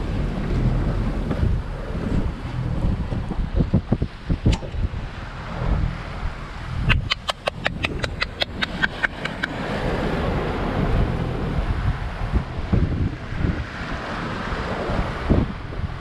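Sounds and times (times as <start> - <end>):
waves rushing past hull: 0.0 - 16.0
wind buffeting microphone: 0.0 - 16.0.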